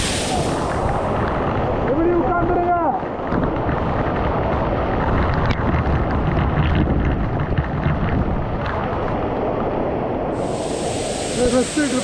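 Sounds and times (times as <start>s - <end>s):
waterfall rushing: 0.0s - 1.2s, 10.4s - 12.0s.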